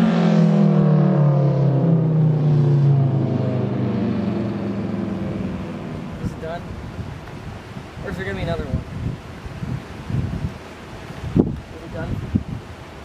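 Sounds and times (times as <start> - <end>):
siren winding down: 0.0 - 6.3.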